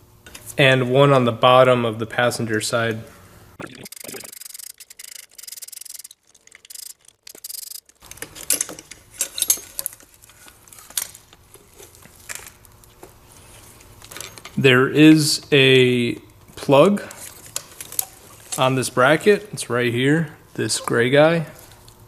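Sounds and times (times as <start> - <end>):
hand ratchet clicking: 3.9 - 8.0.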